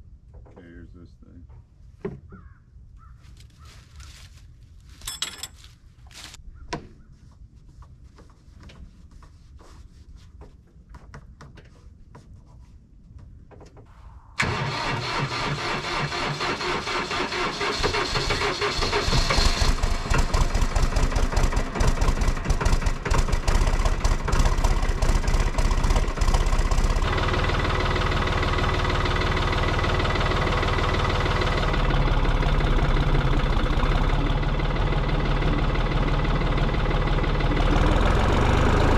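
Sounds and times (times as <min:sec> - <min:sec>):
tractor diesel engine running: 0:14.4 - 0:38.9.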